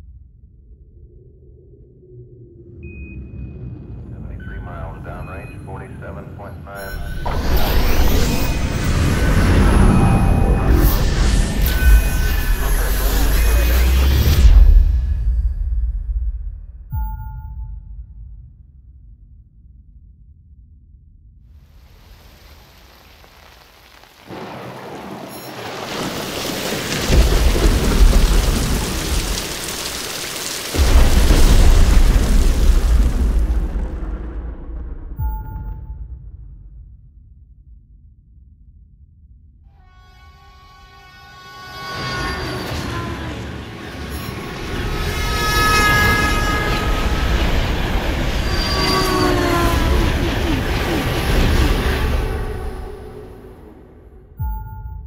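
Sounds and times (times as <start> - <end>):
train rumble: 3.9 - 14.3, 40.0 - 54.1
heavy rain: 6.8 - 14.6, 21.6 - 34.9, 41.9 - 54.0
deep thunder rumbles: 22.7 - 37.1, 42.3 - 54.2
wheels screeching: 40.9 - 53.9.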